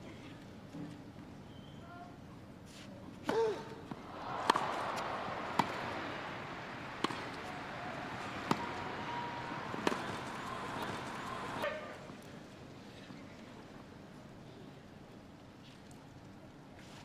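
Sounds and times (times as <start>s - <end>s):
tennis ball struck by racquets: 3.3s - 11.8s
crowd noise: 3.8s - 12.2s.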